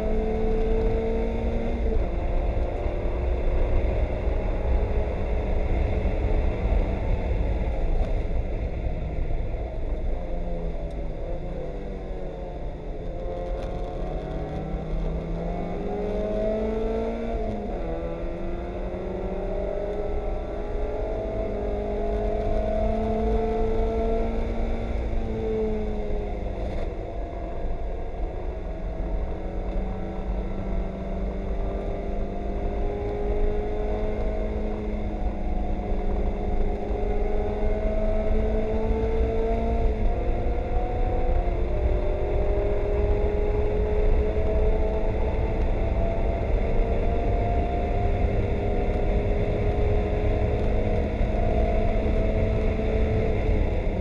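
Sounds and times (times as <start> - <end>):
low rumble of road noise: 0.0 - 54.0
race car engine revving: 28.4 - 54.0.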